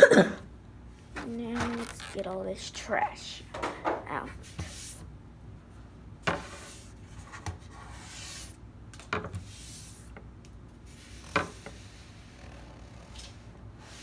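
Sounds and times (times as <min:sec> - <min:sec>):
packaging rustling and scraping: 0:01.2 - 0:02.5.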